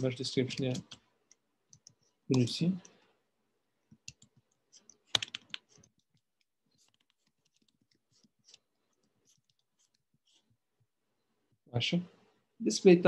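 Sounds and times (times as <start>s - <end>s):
keyboard key clicks: 5.1s - 5.6s.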